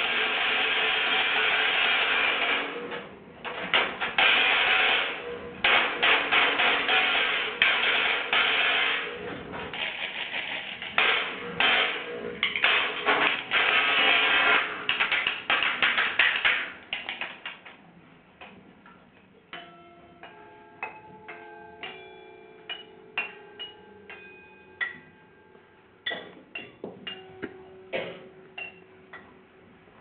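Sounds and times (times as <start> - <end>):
light strikes on metal hangers ringing: 19.6 - 25.3, 26.0 - 29.3.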